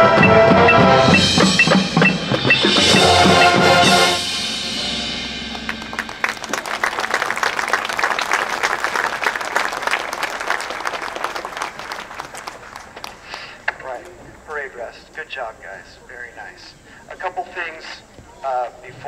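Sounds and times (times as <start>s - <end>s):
marching band playing: 0.0s - 10.0s
audience applauding: 5.5s - 14.2s.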